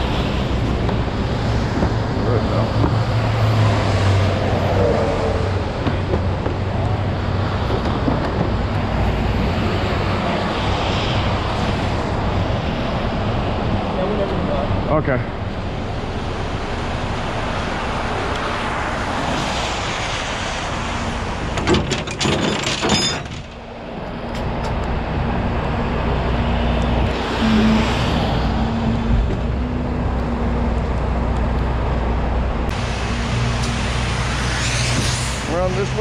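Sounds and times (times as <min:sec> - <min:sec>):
low engine hum: 0:23.6 - 0:35.8
tyres hissing on wet pavement: 0:32.7 - 0:36.0.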